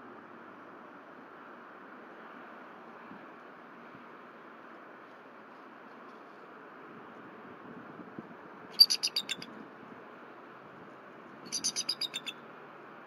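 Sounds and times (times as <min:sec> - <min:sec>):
eagle chattering calls: 0:08.8 - 0:09.4, 0:11.5 - 0:12.4.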